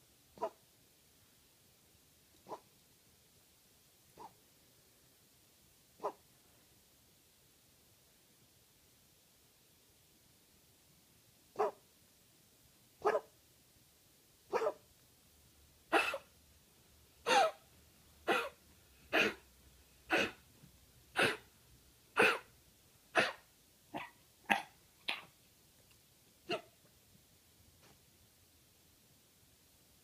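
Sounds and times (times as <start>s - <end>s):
dog coughing: 15.9s - 16.3s, 17.2s - 17.6s, 18.2s - 19.5s, 20.1s - 20.4s, 21.1s - 21.5s, 22.2s - 22.5s, 23.1s - 25.3s, 26.5s - 26.7s.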